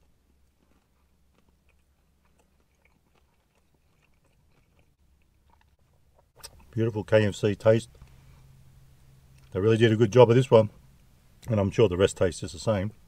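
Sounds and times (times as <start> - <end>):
closed-mouth chewing: 0.0 - 6.8
low steady hum: 0.0 - 13.0.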